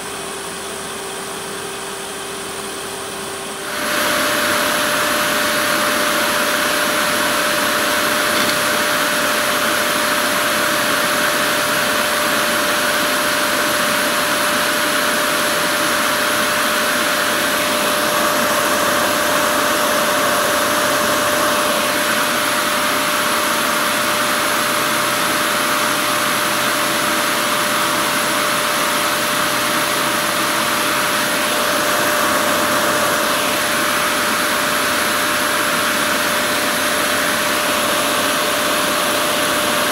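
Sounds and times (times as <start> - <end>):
wood lathe whirring: 3.6 - 39.9
lathe knife cutting wood: 3.7 - 15.8.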